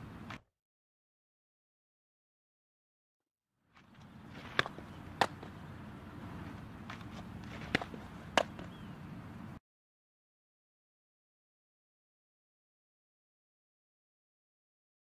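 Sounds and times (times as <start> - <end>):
steady low background noise: 0.0 - 0.4, 3.8 - 9.6
ball smacking into mitt: 4.3 - 5.6, 6.9 - 8.8.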